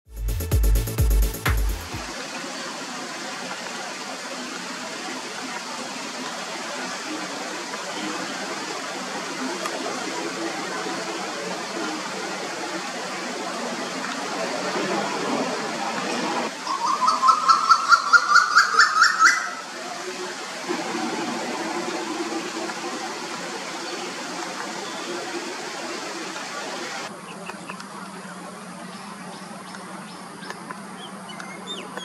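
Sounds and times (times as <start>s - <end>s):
steady background hiss: 2.0s - 32.0s
bird calling rising in pitch: 16.6s - 19.7s.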